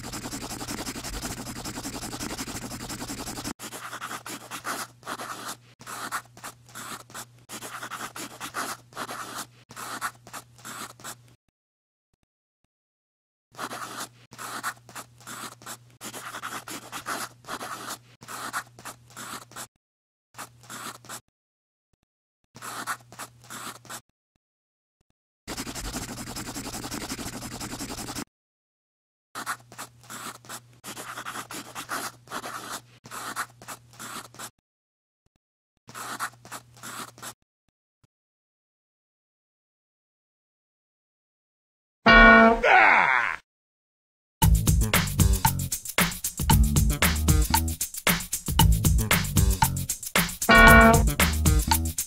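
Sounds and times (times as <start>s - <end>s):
marker scratching on surface: 0.0s - 11.3s, 13.6s - 19.7s, 20.4s - 21.2s, 22.6s - 24.0s, 25.5s - 28.3s, 29.4s - 34.5s, 35.9s - 37.4s, 42.1s - 42.5s, 45.0s - 52.0s.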